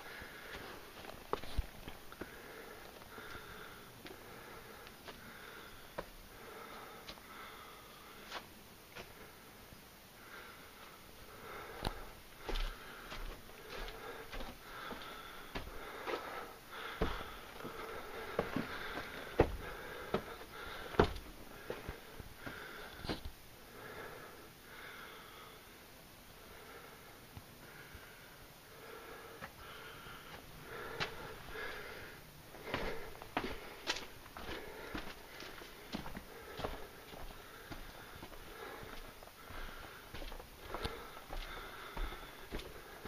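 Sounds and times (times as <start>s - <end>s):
person breathing heavily: 0.0s - 43.0s
footsteps on sandy rock path: 0.2s - 7.3s, 11.7s - 23.3s, 29.4s - 43.0s.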